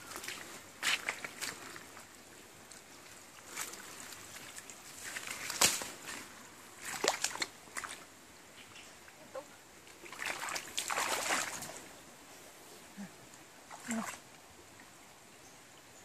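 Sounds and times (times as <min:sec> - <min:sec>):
water splashing in stream: 0:00.0 - 0:08.2, 0:09.8 - 0:11.9, 0:13.6 - 0:15.0.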